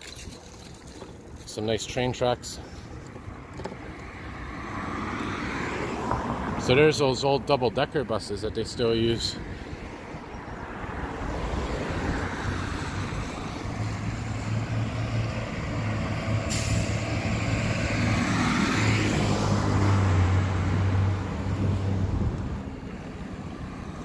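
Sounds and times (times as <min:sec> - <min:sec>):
heavy vehicle engine rumble: 0:11.5 - 0:24.0.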